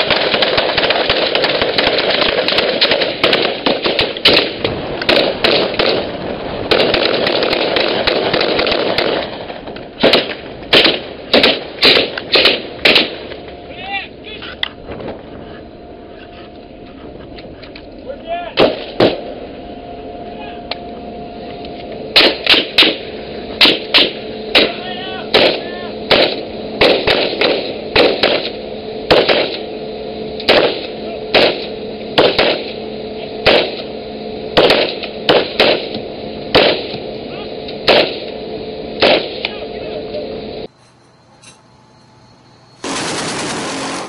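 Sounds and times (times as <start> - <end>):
rifle shots: 0.0 - 9.4, 10.0 - 13.2, 18.6 - 19.2, 22.1 - 23.0, 23.6 - 29.7, 30.5 - 32.8, 33.4 - 33.9, 34.6 - 37.0, 37.8 - 38.3, 39.0 - 39.4, 42.8 - 44.0
steady droning tone: 0.0 - 44.0.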